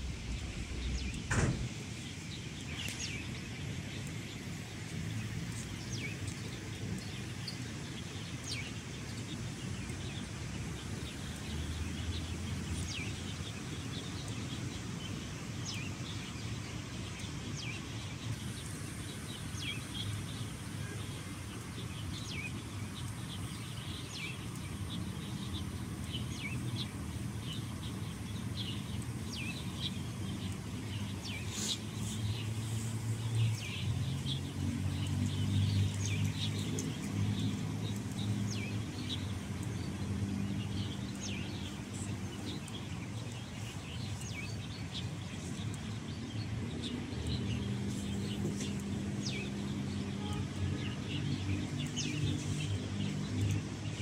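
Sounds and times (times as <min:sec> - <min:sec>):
low outdoor rumble: 0:00.0 - 0:08.0
small birds chirping: 0:00.0 - 0:54.0
sharp click: 0:01.0 - 0:01.7.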